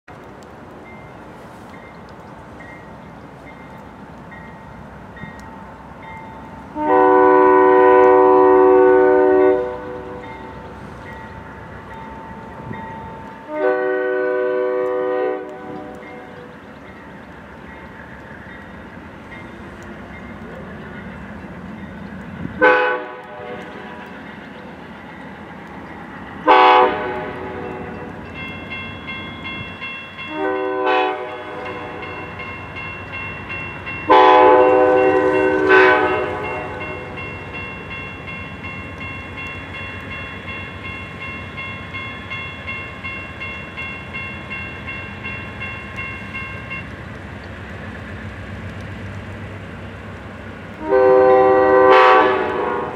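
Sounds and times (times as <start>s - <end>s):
crossing warning bell ringing: 0.8s - 47.1s, 50.8s - 52.9s
locomotive air horn blasts: 6.7s - 10.2s, 13.4s - 16.0s, 22.6s - 23.7s, 26.4s - 28.0s, 30.3s - 32.0s, 34.1s - 37.1s, 50.8s - 52.9s.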